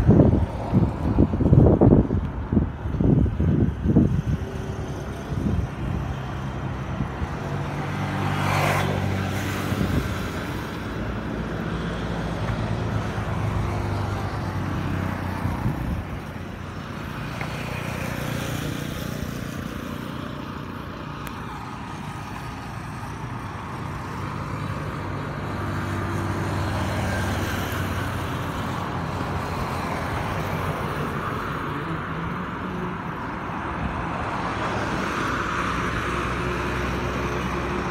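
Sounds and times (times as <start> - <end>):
highway traffic passing: 0.0 - 37.9.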